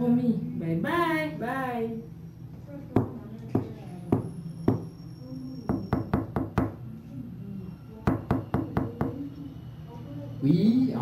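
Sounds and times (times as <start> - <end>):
knocking on a door: 3.0 - 4.9, 5.7 - 6.8, 8.1 - 9.2.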